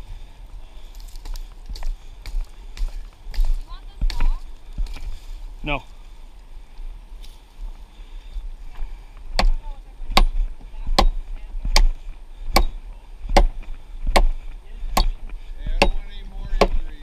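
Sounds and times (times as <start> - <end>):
axe chopping wood: 9.4 - 17.0.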